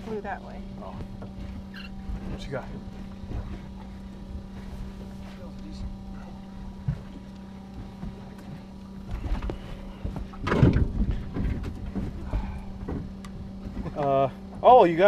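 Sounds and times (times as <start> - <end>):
boat engine humming: 0.0 - 15.0
knocks and rustling: 6.8 - 14.6.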